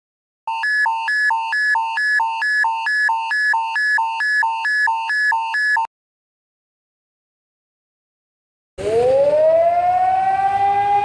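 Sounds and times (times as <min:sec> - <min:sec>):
two-tone alert alarm: 0:00.5 - 0:05.9.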